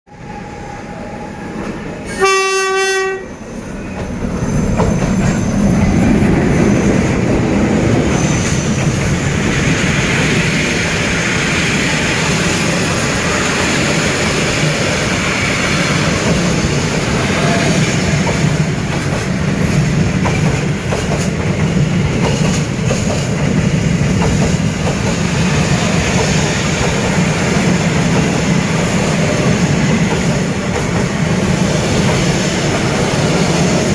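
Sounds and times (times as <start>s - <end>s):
freight train rumbling past: 0.1s - 33.9s
locomotive horn blast: 2.1s - 3.4s.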